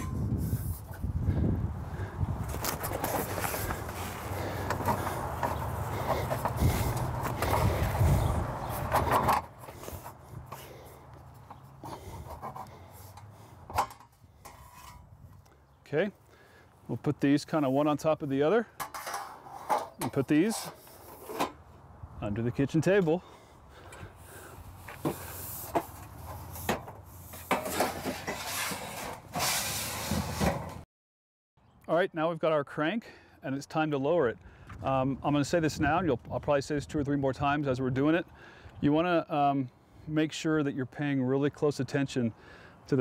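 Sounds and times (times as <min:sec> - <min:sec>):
tent canvas rustling: 0:02.5 - 0:08.9
scraping and rubbing: 0:02.5 - 0:15.1, 0:24.9 - 0:30.8.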